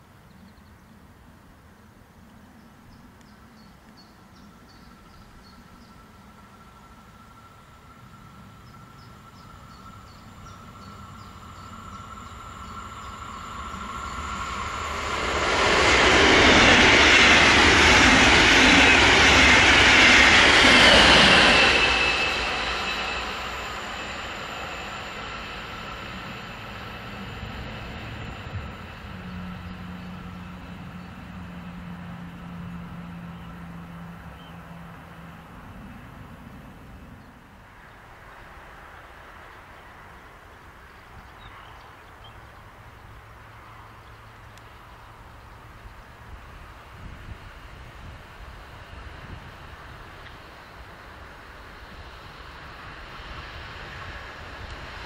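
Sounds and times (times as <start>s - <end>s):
train passing at speed: 0.0s - 55.0s.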